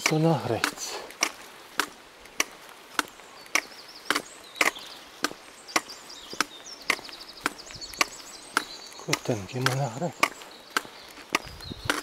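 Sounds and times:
footstep taps: 0.0s - 12.0s
faint bird chirps: 3.1s - 12.0s.

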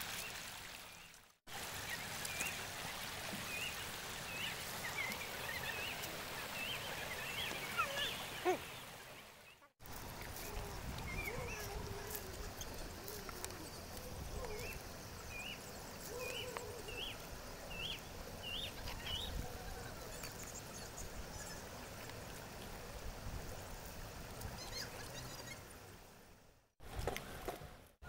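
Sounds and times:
outdoor noise bed: 1.4s - 28.0s.

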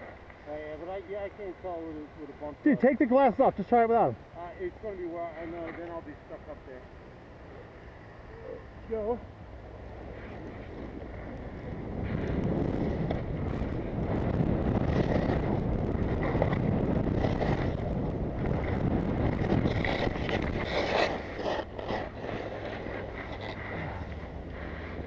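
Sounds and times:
wind buffeting microphone: 9.0s - 25.0s
skis hissing over snow: 19.5s - 25.0s.

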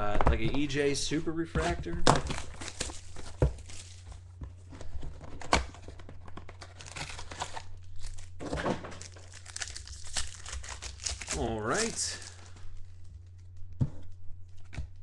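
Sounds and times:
cardboard and wrapper crinkling: 1.6s - 13.6s.

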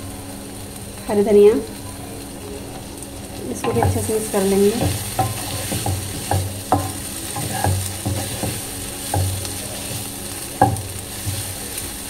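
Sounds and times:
food sizzling in wok: 0.0s - 12.0s
wooden spatula scraping wok: 2.7s - 12.0s.

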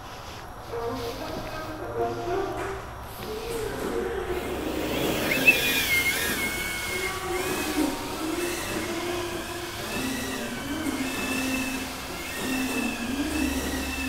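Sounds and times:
small drone motors buzzing: 3.2s - 14.0s.

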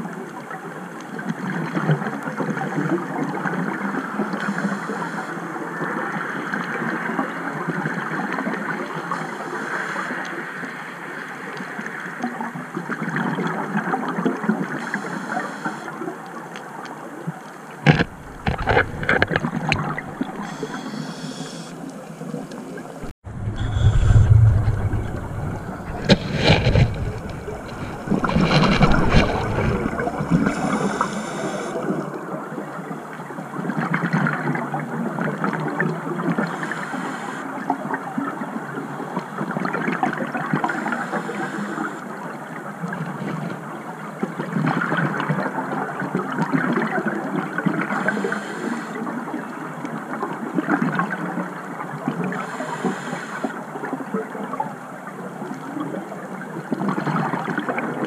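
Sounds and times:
underwater regulator breathing: 17.9s - 21.9s, 23.4s - 32.1s, 40.8s - 42.0s, 47.9s - 49.0s, 52.4s - 53.6s
low rumble: 23.0s - 30.5s.

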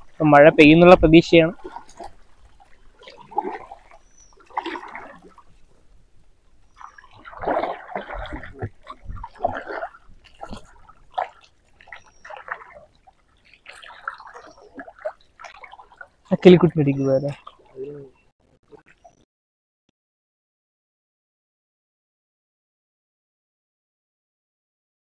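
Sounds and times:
paddle splashing in water: 0.0s - 19.2s.

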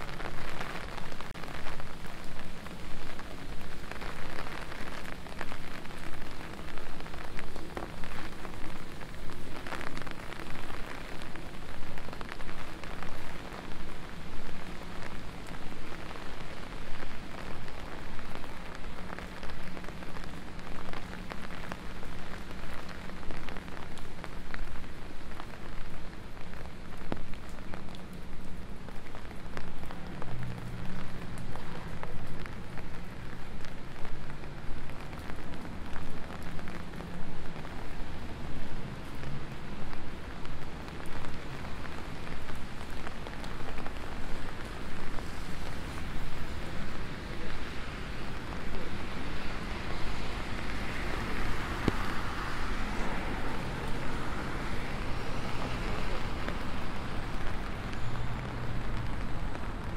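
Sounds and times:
rain on wet street: 0.0s - 59.9s
footsteps on wet pavement: 35.0s - 59.9s.

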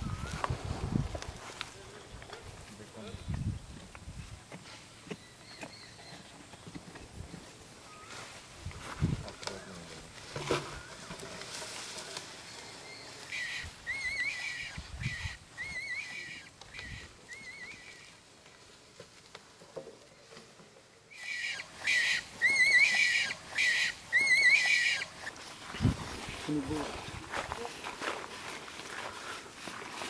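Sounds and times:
rabbit squealing: 13.2s - 18.1s, 21.2s - 25.3s.

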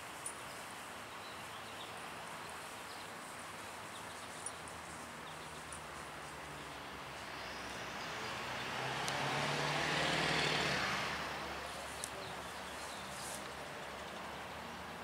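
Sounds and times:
car driving past: 7.3s - 12.7s.

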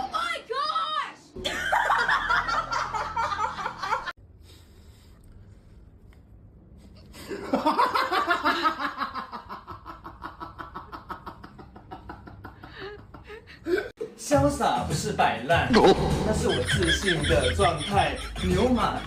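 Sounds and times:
person laughing hard: 15.7s - 19.0s.

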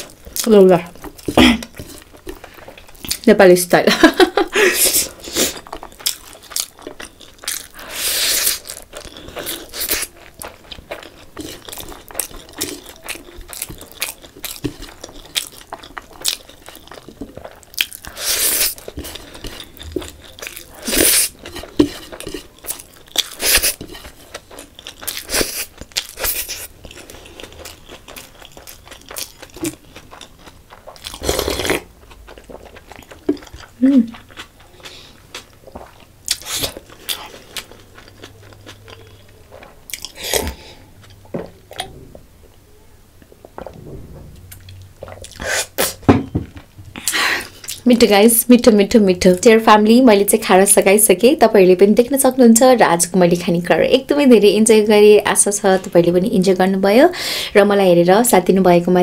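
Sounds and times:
wet chewing with mouth clicks: 0.0s - 3.3s, 4.9s - 42.0s.

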